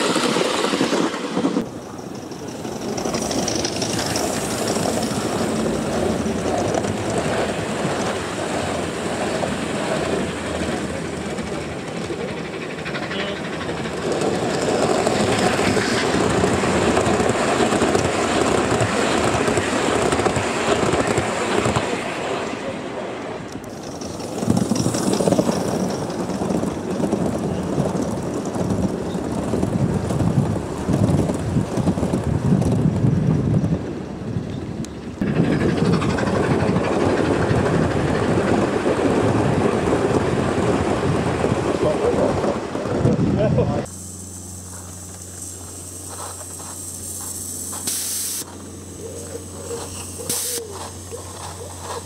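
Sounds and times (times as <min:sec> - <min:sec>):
model train wheels rumbling on rails: 0:00.0 - 0:44.0, 0:44.6 - 0:52.0
model train wheels clattering: 0:00.3 - 0:08.2, 0:23.6 - 0:30.2.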